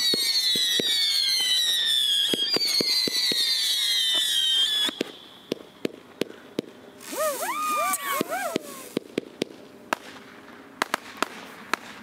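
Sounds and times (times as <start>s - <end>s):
firework whistles falling in pitch: 0.0s - 5.6s, 7.0s - 9.0s
firework pops: 2.3s - 10.2s, 10.8s - 12.0s.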